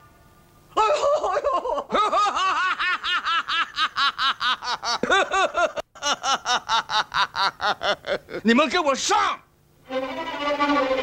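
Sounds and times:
cartoon character laughing: 0.8s - 8.4s.

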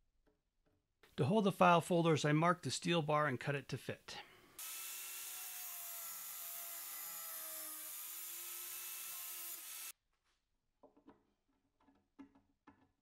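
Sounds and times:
angle grinder cutting steel: 4.6s - 9.9s.

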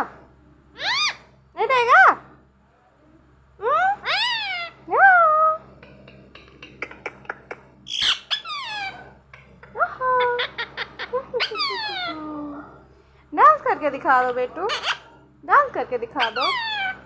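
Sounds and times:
parakeet squeaky calls: 0.8s - 1.2s, 4.0s - 4.8s, 7.9s - 9.0s, 10.2s - 12.2s, 14.2s - 15.2s, 16.1s - 17.0s
parakeet harsh squawk: 0.8s - 1.3s, 4.0s - 4.8s, 7.9s - 9.1s, 10.2s - 12.2s, 14.2s - 15.2s, 16.1s - 17.0s.

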